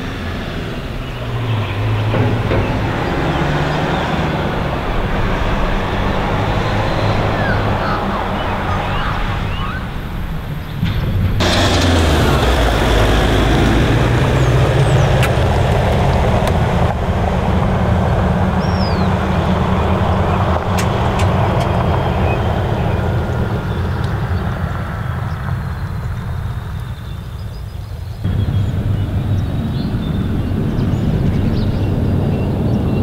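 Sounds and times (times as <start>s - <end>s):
vehicle engine drone: 0.0s - 33.0s
tyres on loose gravel: 7.2s - 32.8s.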